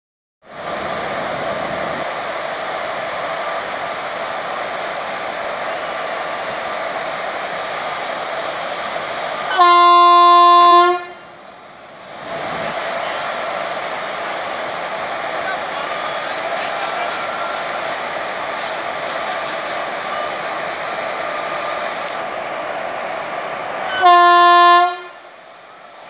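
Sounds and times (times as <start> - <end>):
locomotive horn blast: 9.5 - 11.3, 23.9 - 25.2
electric locomotive running noise: 12.6 - 23.9.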